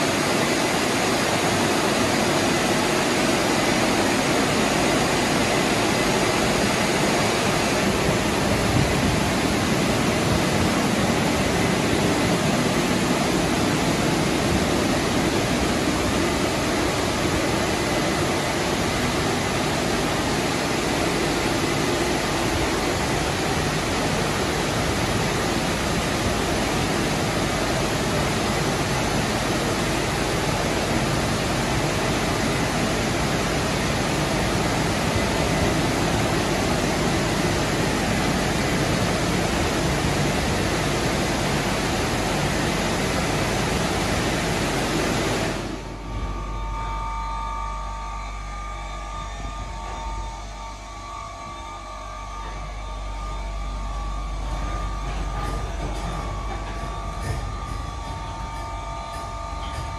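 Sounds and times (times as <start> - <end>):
car wash spray and air rushing: 0.0 - 47.2.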